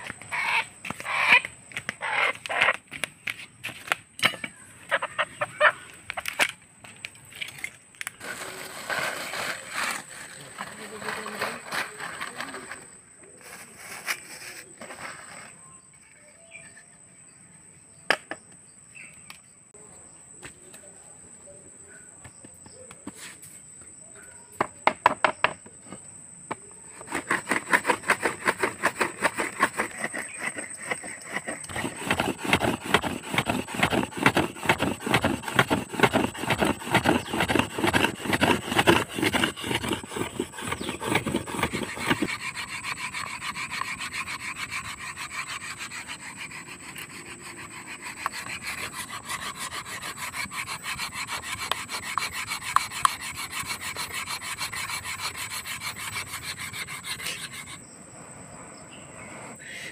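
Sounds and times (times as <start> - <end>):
wood rasping against wood: 26.9 - 57.8.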